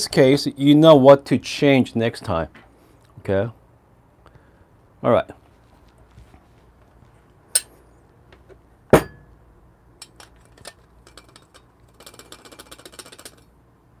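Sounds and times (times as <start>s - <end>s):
metal espresso gear clinking: 10.0s - 13.4s
rattle of small clicks: 10.0s - 13.5s.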